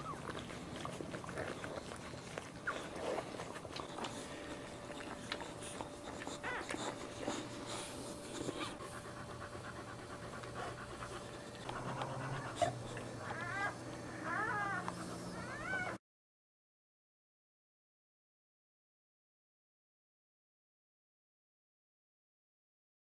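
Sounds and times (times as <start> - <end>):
wet licking clicks: 0.0 - 7.5, 10.4 - 13.1
dog panting: 0.0 - 16.0
puppy squeaking: 6.0 - 6.9.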